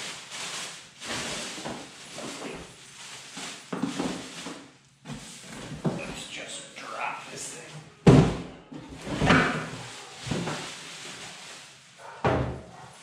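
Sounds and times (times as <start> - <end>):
plastic wrap crinkling: 0.0 - 7.7, 9.6 - 12.2.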